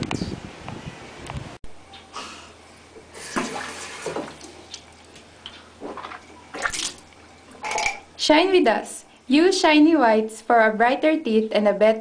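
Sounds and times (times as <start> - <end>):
water splashing in a sink: 3.2 - 5.1, 5.8 - 7.3.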